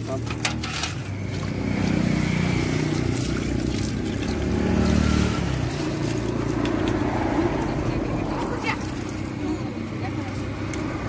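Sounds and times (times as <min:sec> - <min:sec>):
water pouring into steel basin: 0:00.0 - 0:07.7.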